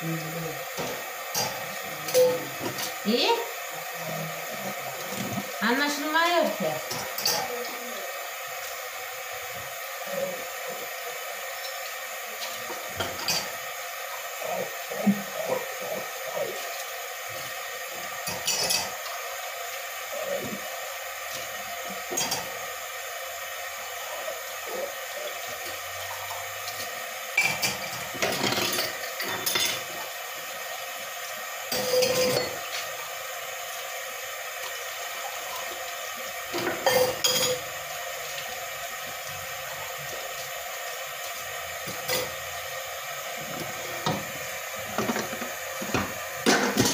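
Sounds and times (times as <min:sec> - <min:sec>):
running water hiss: 0:00.0 - 0:46.9
plates and cutlery clinking: 0:18.2 - 0:19.0, 0:22.1 - 0:22.6, 0:26.6 - 0:29.9, 0:31.7 - 0:32.8, 0:36.5 - 0:37.7, 0:45.0 - 0:46.9.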